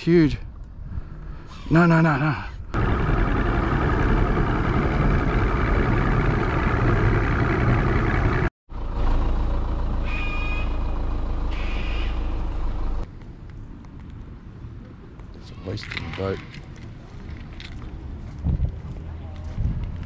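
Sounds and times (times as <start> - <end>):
outboard motor rumbling: 2.8 - 9.0.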